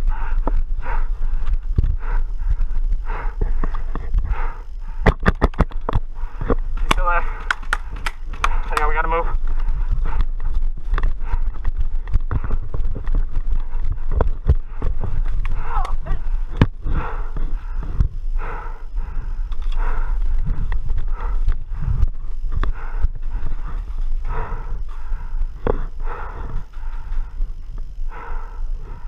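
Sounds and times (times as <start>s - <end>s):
microphone handling noise: 0.0s - 18.3s
heavy rhythmic breathing: 0.0s - 29.0s
wind rumble: 0.0s - 29.0s.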